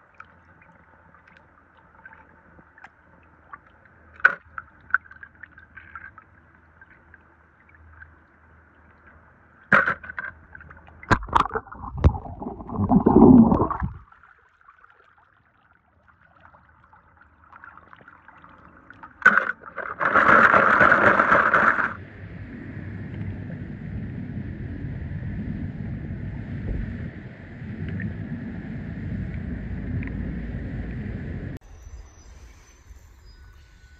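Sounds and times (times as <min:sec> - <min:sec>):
water splashing: 0:10.6 - 0:22.0
churning water bubbling: 0:10.9 - 0:22.0.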